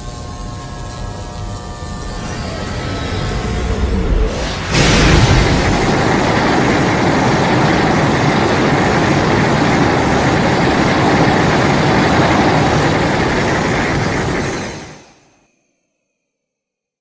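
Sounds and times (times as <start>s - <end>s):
loud steady rumbling: 1.8s - 15.0s.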